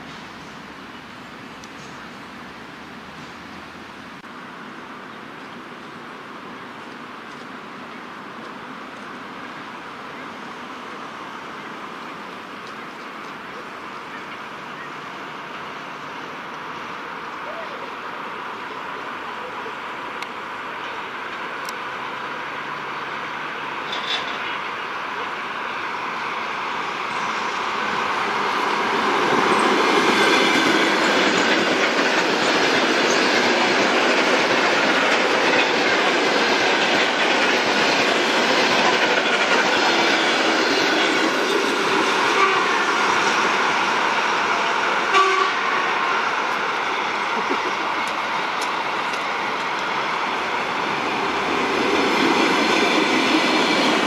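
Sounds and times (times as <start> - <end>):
electric trains passing: 0.0 - 54.0
rail clatter: 23.8 - 24.6, 26.5 - 54.0.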